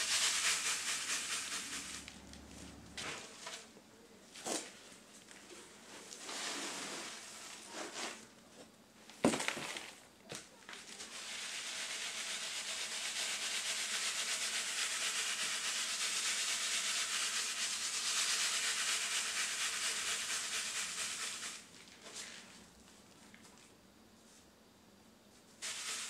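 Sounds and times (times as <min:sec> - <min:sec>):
charcoal rattling on sieve: 0:00.0 - 0:03.7, 0:10.7 - 0:22.6, 0:25.6 - 0:26.0.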